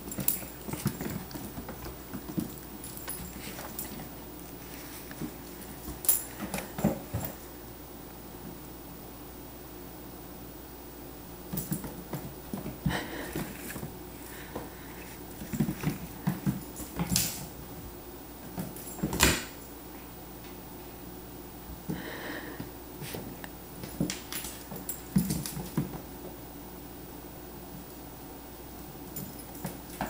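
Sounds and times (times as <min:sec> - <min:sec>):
animals scuffling on wooden floor: 0:00.0 - 0:07.6, 0:11.6 - 0:17.8.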